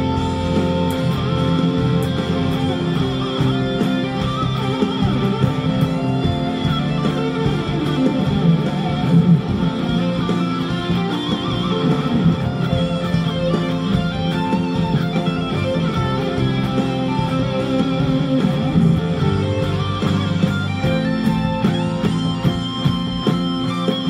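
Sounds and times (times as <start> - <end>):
backing band accompaniment: 0.0 - 24.0
electric guitar lead lines: 0.0 - 24.0.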